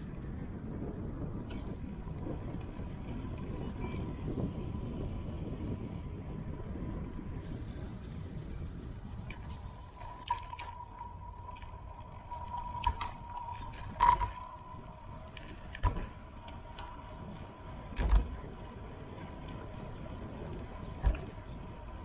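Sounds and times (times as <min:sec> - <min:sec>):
road rumble: 0:00.0 - 0:22.0
wind noise: 0:00.0 - 0:22.0
thin high whine: 0:09.5 - 0:17.2.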